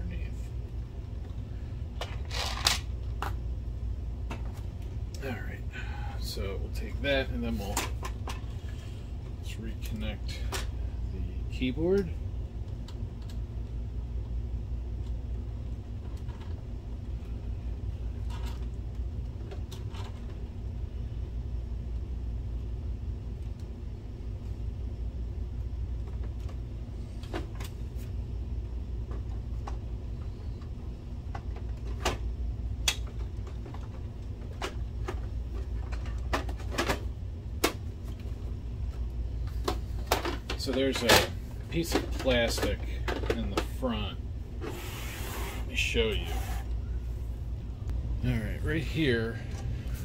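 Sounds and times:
steady low rumble: 0.0s - 50.0s
plastic parts clicking and knocking: 32.8s - 37.8s, 39.6s - 43.8s.

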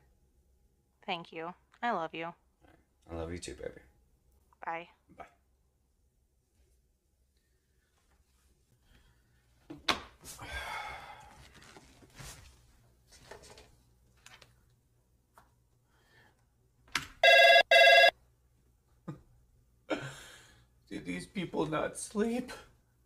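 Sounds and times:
electronic phone rings: 17.2s - 18.1s.

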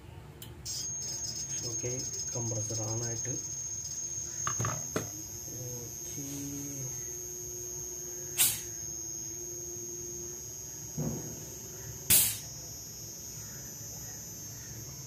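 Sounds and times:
air conditioner compressor hum: 0.0s - 15.0s
steady whine: 0.4s - 15.0s
sharp click: 8.3s - 8.8s, 12.1s - 12.5s.

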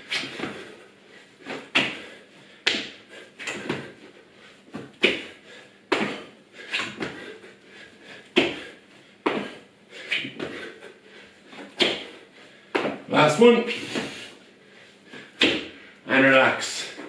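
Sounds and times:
thumps and scuffs on tiled floor: 6.8s - 7.3s, 8.4s - 10.7s, 11.6s - 13.1s, 15.2s - 15.7s.

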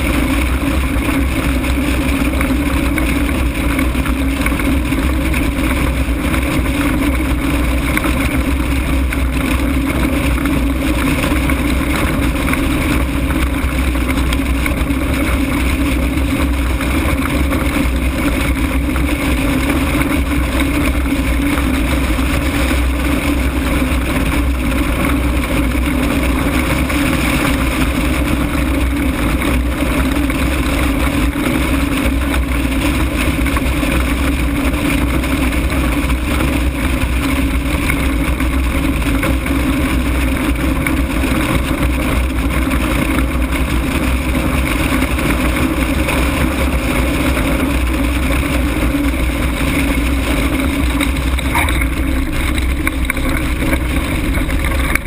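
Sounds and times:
low drone: 0.0s - 55.0s
wind rushing over microphone: 0.0s - 55.0s.

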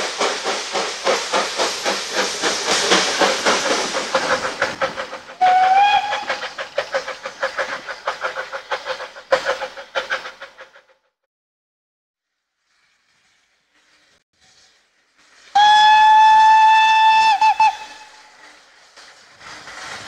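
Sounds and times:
steam hissing: 0.0s - 10.9s, 12.8s - 20.0s
steam locomotive chuffing: 0.0s - 11.2s, 14.0s - 20.0s
steam whistle blast: 5.4s - 6.4s, 15.5s - 18.3s.

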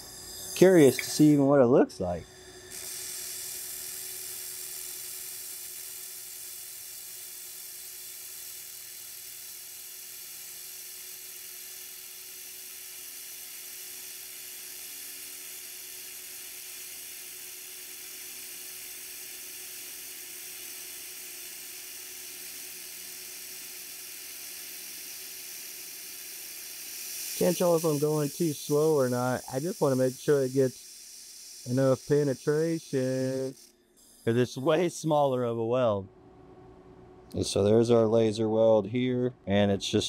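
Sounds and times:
laser welder hissing and sizzling: 0.0s - 35.1s
faint steady hum: 27.3s - 40.0s.

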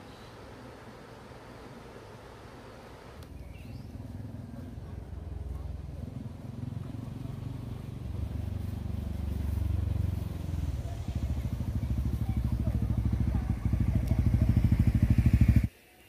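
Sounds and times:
small engine running: 0.0s - 15.7s.

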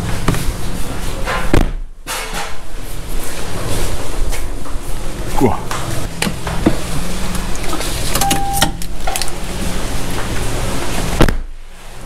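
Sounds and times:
short beep: 8.2s - 8.8s.

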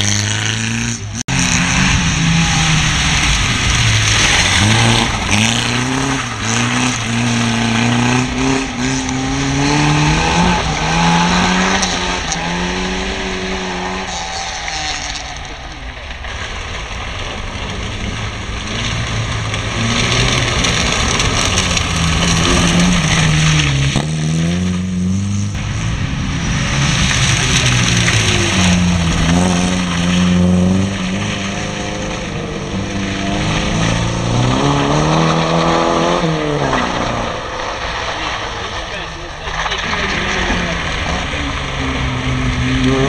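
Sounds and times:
car engine revving: 0.0s - 43.0s.

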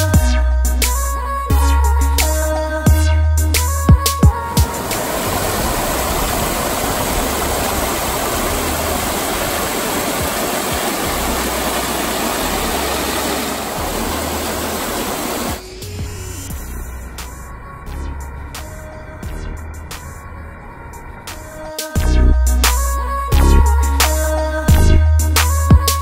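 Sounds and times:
water rushing over rocks: 4.4s - 15.6s.

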